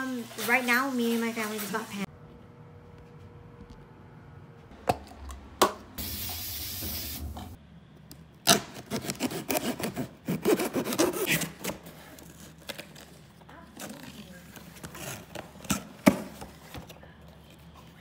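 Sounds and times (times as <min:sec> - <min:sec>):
packaging rubbing and scraping: 0:08.8 - 0:16.8.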